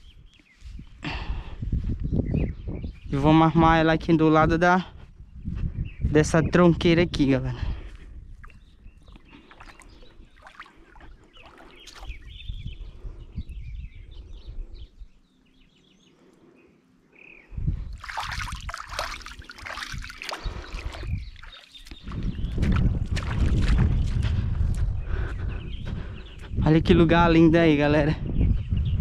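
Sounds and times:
shallow water sloshing and splashing: 0:08.4 - 0:12.3, 0:17.9 - 0:23.8.

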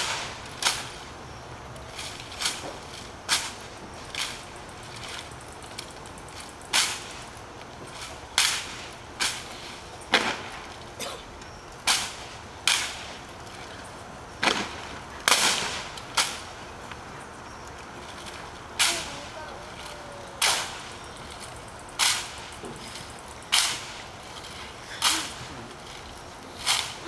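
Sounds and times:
hands slapping rifles: 0:22.0 - 0:22.3.

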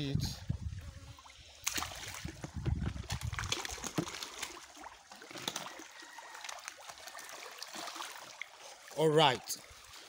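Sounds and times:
fish splashing in water: 0:01.5 - 0:08.9.

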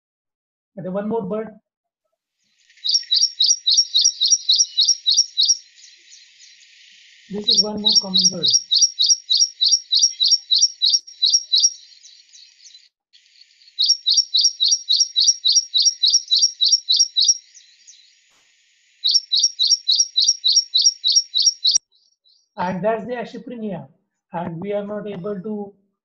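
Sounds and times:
bird song high repeated notes: 0:02.7 - 0:18.2, 0:19.0 - 0:22.6.

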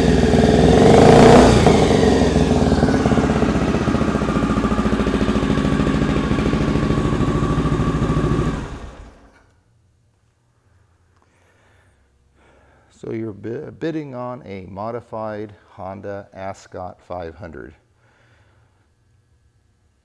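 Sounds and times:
motorcycle engine idling: 0:00.0 - 0:09.3.

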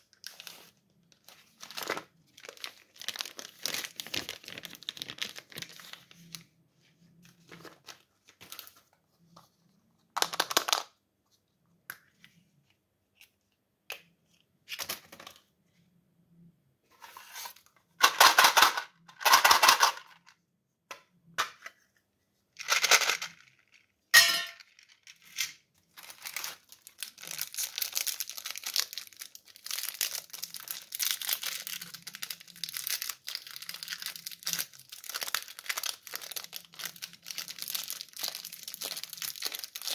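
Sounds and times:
candy wrappers crinkling: 0:00.0 - 0:06.5, 0:22.6 - 0:24.0, 0:24.6 - 0:39.9
wrapper being peeled open: 0:00.1 - 0:06.4, 0:25.9 - 0:39.9.

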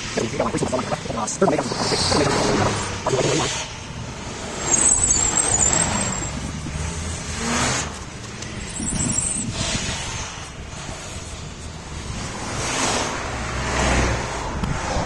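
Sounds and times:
cars and buses driving past: 0:01.6 - 0:15.0
brief high squeal: 0:04.7 - 0:06.4.

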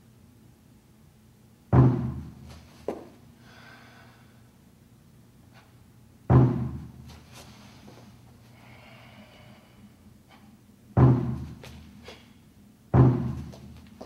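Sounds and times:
large drum booming: 0:01.7 - 0:02.4, 0:06.3 - 0:06.9, 0:11.0 - 0:11.6
deep breathing: 0:03.4 - 0:04.6, 0:07.4 - 0:10.6.

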